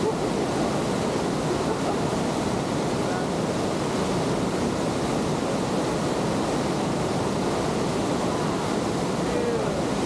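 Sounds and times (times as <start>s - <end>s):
whitewater rushing: 0.0s - 10.0s.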